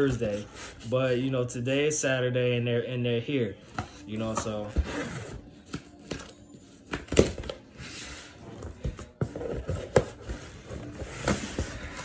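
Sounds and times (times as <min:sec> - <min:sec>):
cardboard rustling and scraping: 0:07.8 - 0:12.0.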